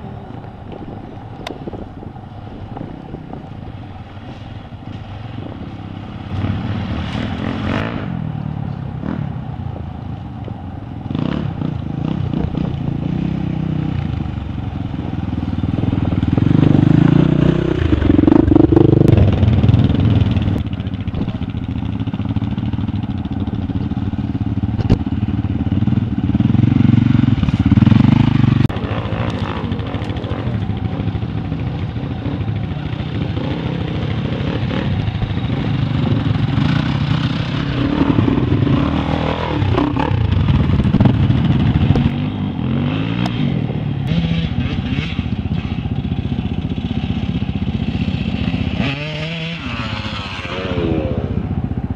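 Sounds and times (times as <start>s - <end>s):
motorcycles riding past revving: 2.1s - 51.9s.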